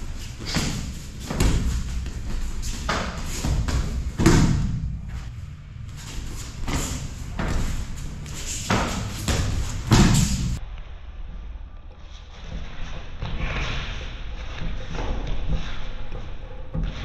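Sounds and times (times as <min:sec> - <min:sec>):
bodies thudding on mats: 0:00.4 - 0:05.2, 0:06.0 - 0:10.6.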